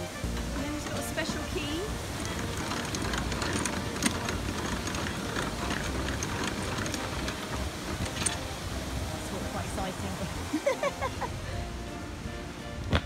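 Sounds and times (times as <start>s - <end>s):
water rushing through sluices: 0.0s - 13.0s
metallic clicks of paddle gear: 0.3s - 8.7s.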